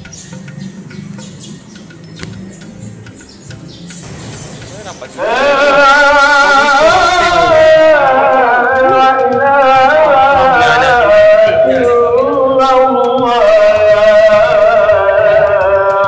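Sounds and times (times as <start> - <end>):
person singing long wavering notes: 5.1 - 16.0.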